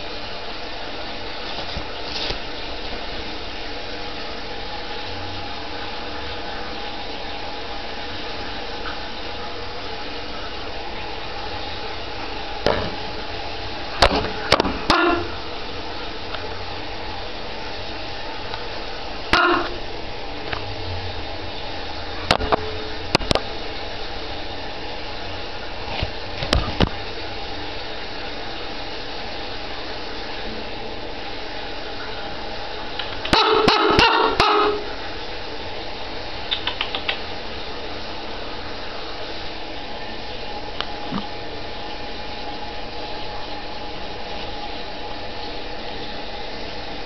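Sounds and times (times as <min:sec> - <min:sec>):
raven calling: 0:14.8 - 0:15.4, 0:19.3 - 0:19.9, 0:33.2 - 0:35.0
sharp clicks: 0:36.5 - 0:37.2.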